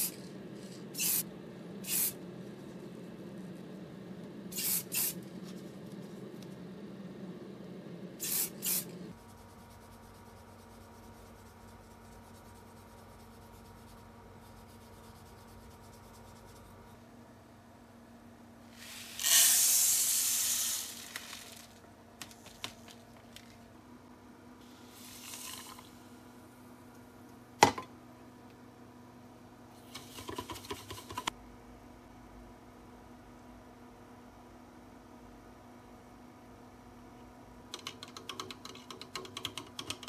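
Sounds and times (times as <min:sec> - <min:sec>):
spray paint hissing: 0:00.0 - 0:01.2, 0:01.8 - 0:02.2, 0:04.5 - 0:05.2, 0:08.2 - 0:09.0, 0:18.8 - 0:21.7, 0:24.8 - 0:25.8
steady hum: 0:00.0 - 0:37.7
granules poured into plastic cup: 0:18.8 - 0:23.6, 0:25.0 - 0:25.9.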